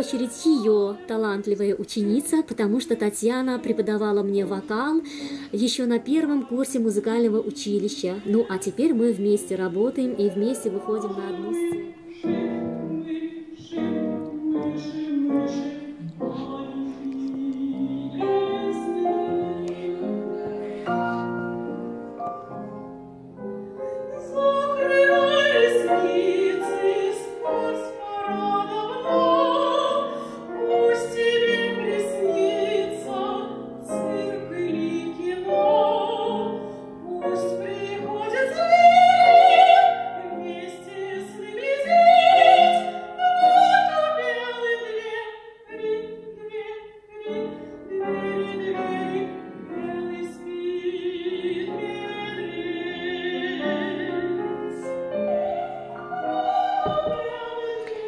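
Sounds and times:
soprano singing with vibrato: 0.0s - 21.9s, 23.6s - 58.0s
grand piano: 0.0s - 58.0s.

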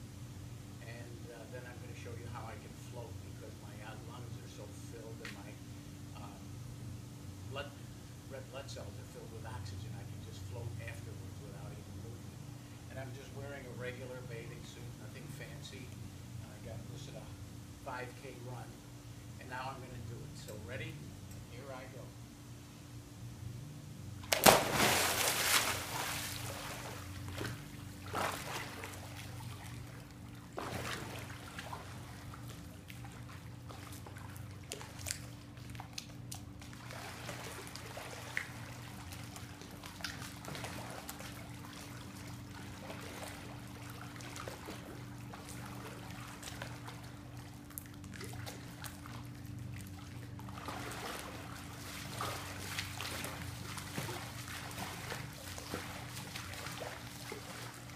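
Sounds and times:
pool water lapping: 0.5s - 6.6s, 7.2s - 22.1s, 24.1s - 57.9s
swimmer splashing into pool: 24.2s - 30.0s, 30.6s - 32.2s.

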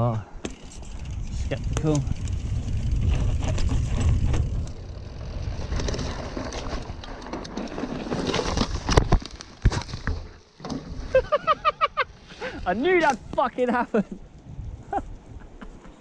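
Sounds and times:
wind rumble on microphone: 0.0s - 7.2s, 14.2s - 16.0s
mountain bike tyres rolling on dirt: 0.0s - 11.7s
bike crashing knocks and thumps: 0.4s - 11.2s.

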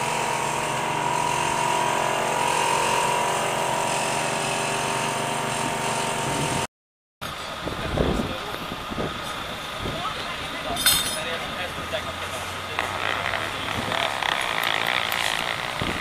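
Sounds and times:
air compressor motor humming: 0.0s - 6.7s.

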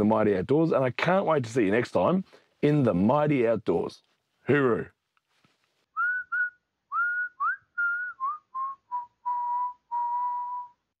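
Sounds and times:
person whistling a tune: 5.9s - 10.9s.

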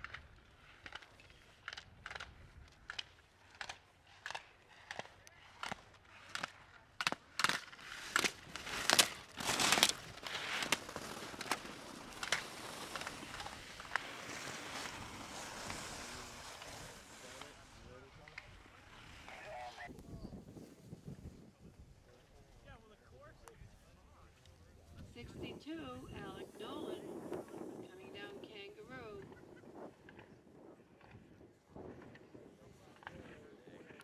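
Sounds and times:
wind: 0.0s - 34.0s
skis scraping on snow: 7.4s - 19.9s, 24.3s - 30.7s.

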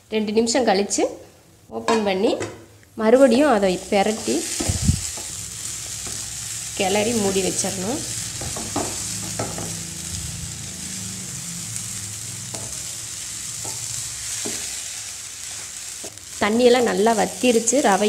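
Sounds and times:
pan hissing on low flame: 3.6s - 18.0s
low hum: 6.6s - 14.2s
spatula scraping and knocking pan: 8.3s - 9.8s, 12.5s - 12.9s, 13.5s - 14.8s.

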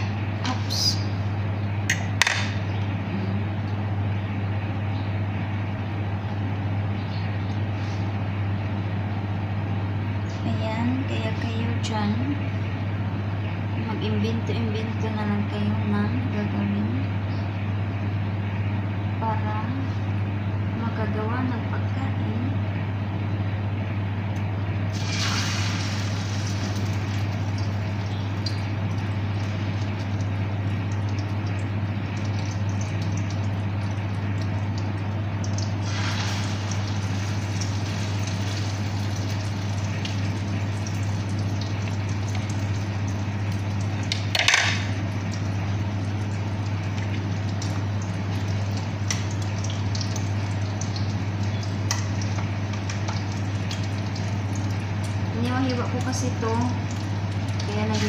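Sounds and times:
steady low hum: 0.0s - 58.0s
omelette sizzling in oil: 24.9s - 58.0s.

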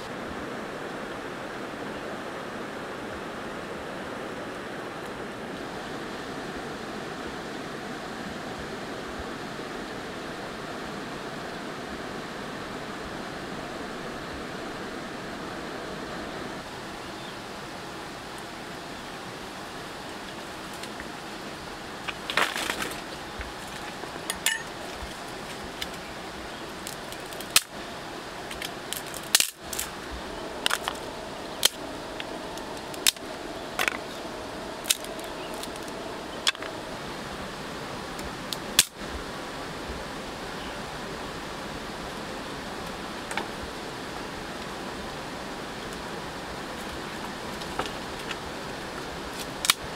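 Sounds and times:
river running over stones: 0.0s - 49.9s
dry branches snapping: 22.0s - 26.0s, 26.8s - 27.8s, 28.5s - 34.2s, 34.8s - 36.8s, 38.5s - 39.0s, 49.3s - 49.8s.

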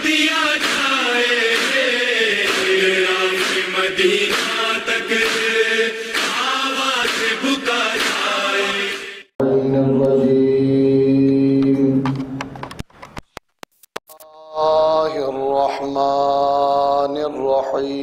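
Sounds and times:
man chanting: 9.4s - 12.1s, 14.2s - 18.0s.

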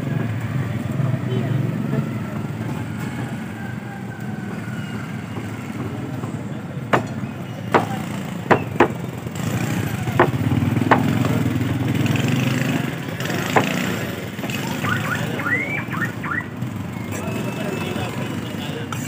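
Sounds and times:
cleaver chopping on wooden block: 6.9s - 9.0s, 10.2s - 11.3s, 13.5s - 13.9s.

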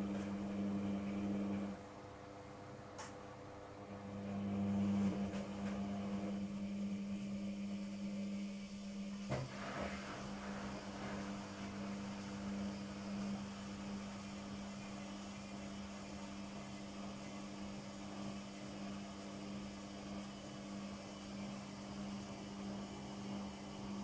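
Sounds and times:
washing machine spinning: 0.0s - 24.0s
washing machine clunk: 9.2s - 13.4s.

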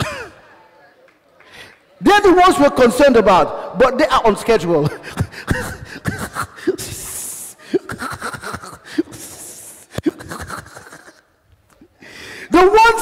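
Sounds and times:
murmur of voices: 4.8s - 10.5s.

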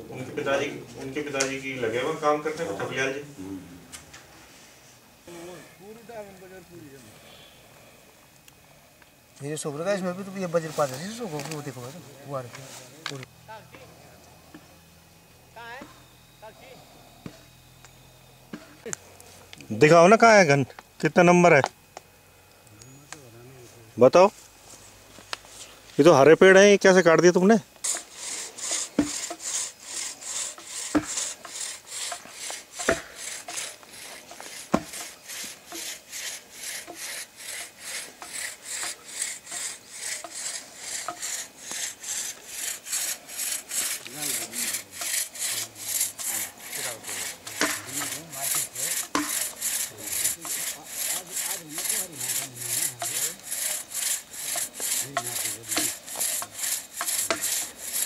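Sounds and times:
hand saw cutting log: 27.8s - 58.0s
sharp knocks: 29.0s - 29.5s, 30.6s - 33.7s, 34.7s - 35.9s, 47.5s - 49.6s.

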